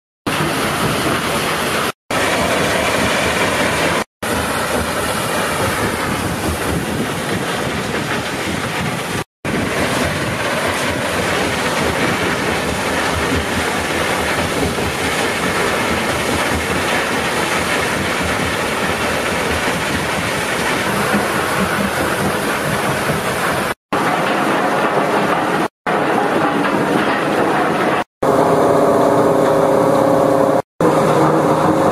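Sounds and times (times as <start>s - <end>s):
machine rumbling and clattering: 0.3s - 31.9s
wet sand and water pouring: 9.0s - 25.6s.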